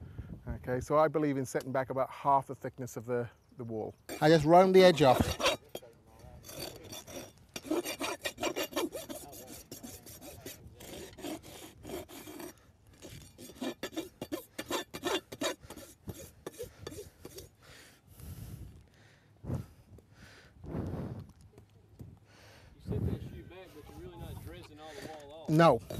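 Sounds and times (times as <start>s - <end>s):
rasp filing in rough strokes: 4.1s - 17.6s.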